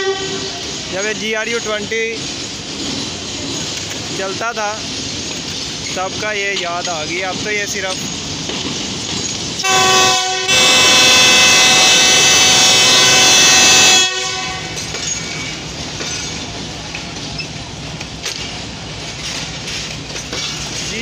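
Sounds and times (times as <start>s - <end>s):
locomotive horn blasts: 0.0s - 0.6s, 9.6s - 14.9s
train rumble: 0.0s - 21.0s.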